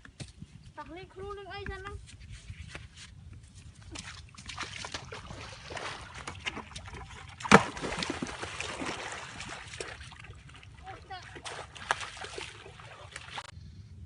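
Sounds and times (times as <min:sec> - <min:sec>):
feet wading through water: 0:03.6 - 0:13.5
bucket splashing into water: 0:04.0 - 0:13.5.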